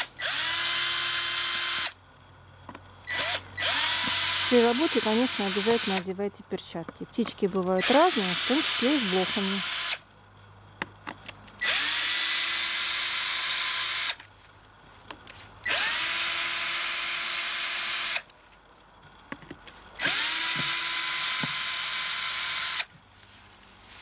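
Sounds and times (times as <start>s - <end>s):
cordless drill whining: 0.0s - 2.0s, 3.0s - 6.0s, 7.8s - 10.0s, 11.6s - 14.2s, 15.6s - 18.3s, 20.0s - 22.9s.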